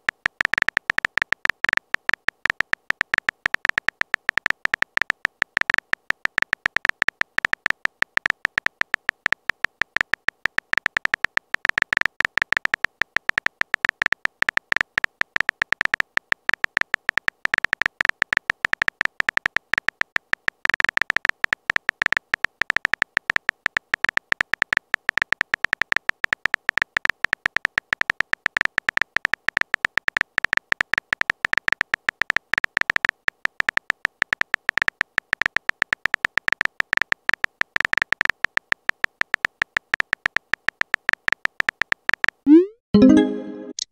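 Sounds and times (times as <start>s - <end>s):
high-pitched key clicks: 35.9s - 43.9s.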